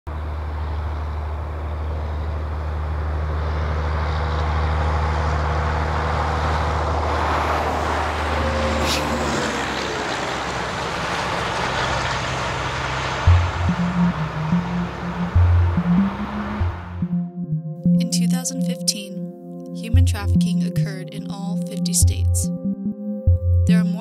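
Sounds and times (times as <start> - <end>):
truck engine hum: 0.0 - 24.0
passing vehicles rushing: 0.1 - 17.2.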